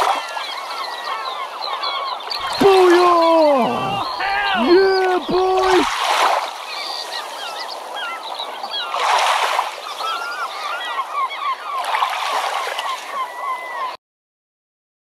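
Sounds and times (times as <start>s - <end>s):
water splashes: 0.0s - 0.5s, 2.3s - 8.1s, 8.7s - 10.2s
honk-like bird calls: 2.4s - 5.8s.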